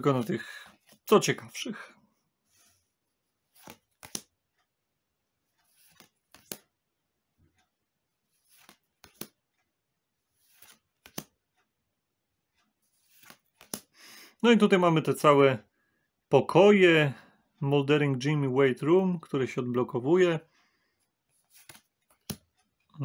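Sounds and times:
cards swishing and snapping: 3.5 - 4.3, 5.6 - 6.7, 8.3 - 9.4, 10.3 - 11.4, 12.9 - 14.0, 21.4 - 22.5.

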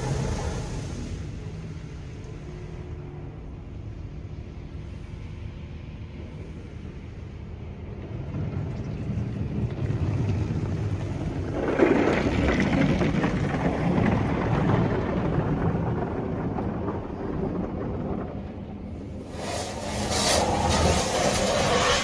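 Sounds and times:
car wash machine humming: 0.0 - 2.8, 19.2 - 22.0
water spraying on windshield: 19.3 - 22.0.

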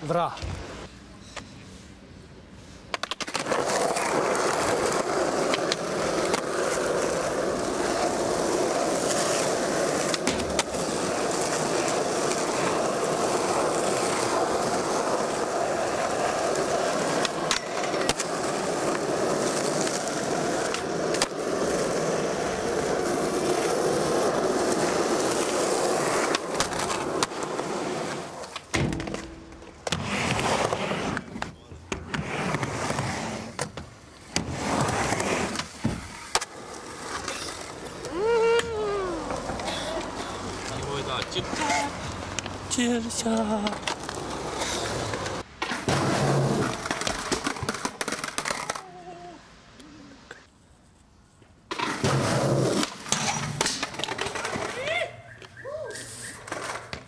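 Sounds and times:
skateboard wheels rolling on asphalt: 0.0 - 49.4, 50.2 - 57.0
skateboard clacks: 2.9 - 22.0, 52.8 - 55.6.

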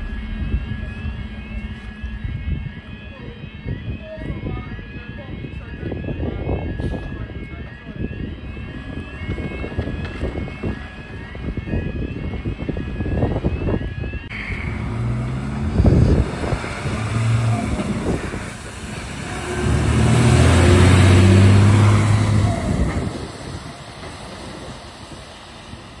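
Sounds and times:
diesel engine running: 0.0 - 3.9, 14.3 - 26.0
rising electronic warning tone: 0.0 - 26.0
truck driving past on wet road: 14.4 - 25.0.

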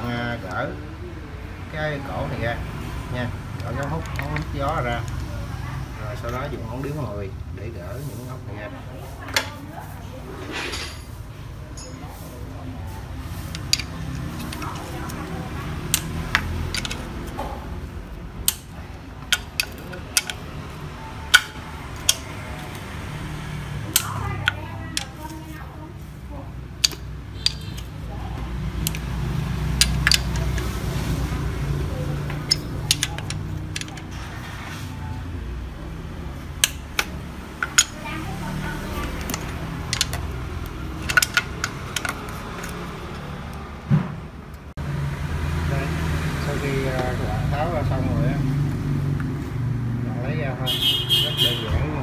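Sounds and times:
wrench clicking on metal bolts: 13.5 - 17.4, 18.4 - 20.7, 21.3 - 22.8, 26.8 - 27.9, 29.8 - 30.7, 32.3 - 34.1, 36.6 - 38.0, 38.8 - 42.9.

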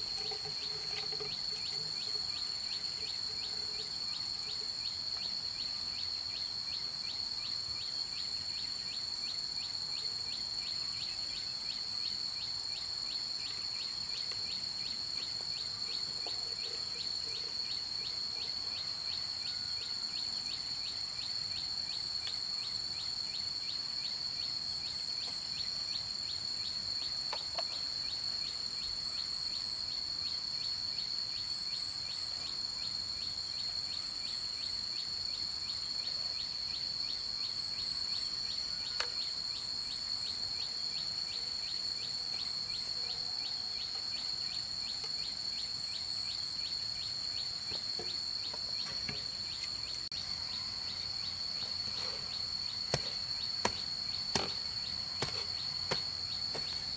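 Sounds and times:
insects droning: 0.0 - 56.9
faint knocks in soil: 55.2 - 56.9.

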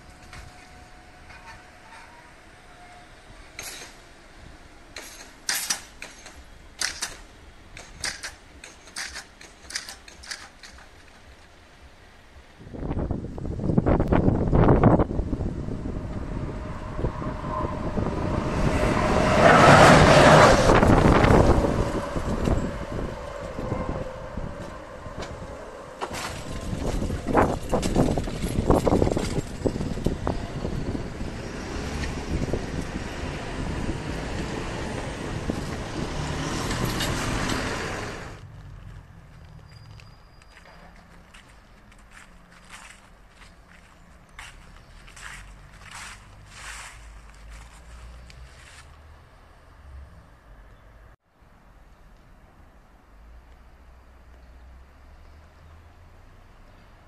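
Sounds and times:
steady low rumble: 11.2 - 31.5.

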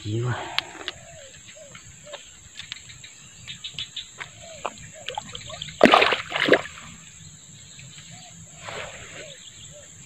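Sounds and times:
splashing in shallow water: 4.2 - 7.1, 8.5 - 9.4.

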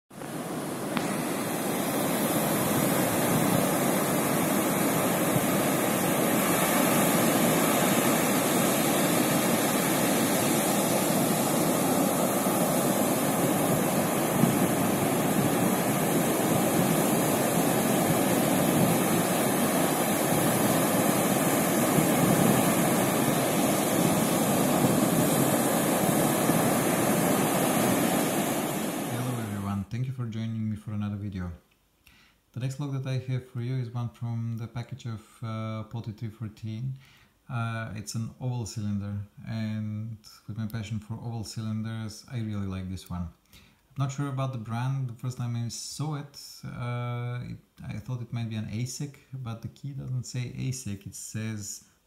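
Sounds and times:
ocean surf on beach: 0.1 - 29.8.

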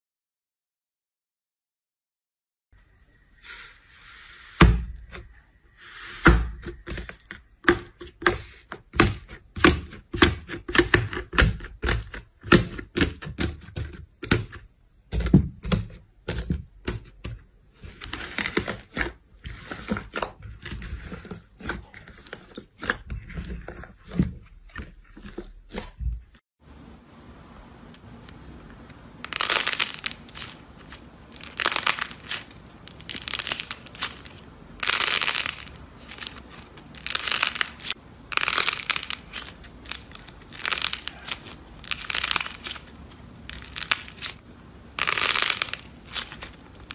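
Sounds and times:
slime squishing: 29.2 - 46.9.

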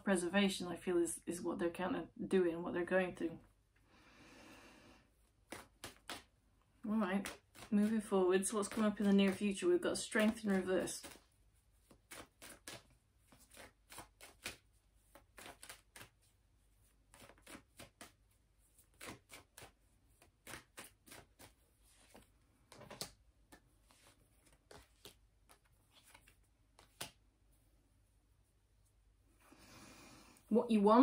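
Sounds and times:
cards being shuffled: 5.4 - 6.4, 7.0 - 16.3, 16.9 - 27.3.

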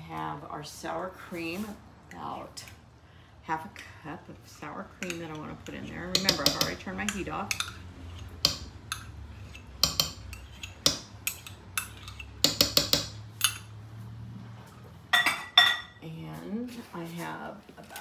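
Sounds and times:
spatula scraping measuring cup: 5.0 - 12.5
spatula tapping cup and pan: 5.0 - 13.6.

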